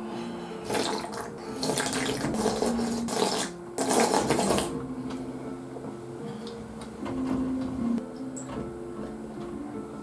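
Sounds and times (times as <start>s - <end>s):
noisy slurping of broth: 0.7s - 4.7s.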